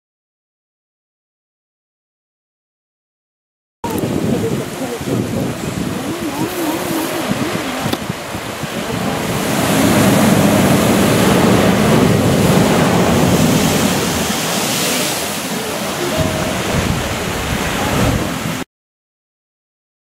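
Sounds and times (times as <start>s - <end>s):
ocean surf breaking on rocks: 3.8s - 18.6s.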